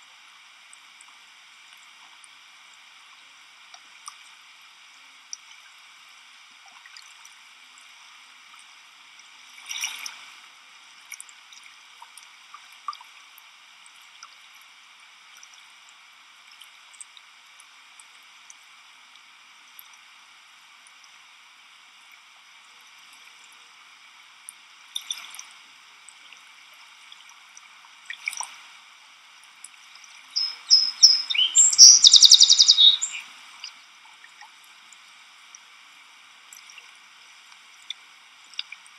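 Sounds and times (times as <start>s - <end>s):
soft water splashes: 22.0s - 31.7s
steady high hiss: 30.3s - 33.6s
rapid high chirps: 30.4s - 33.2s.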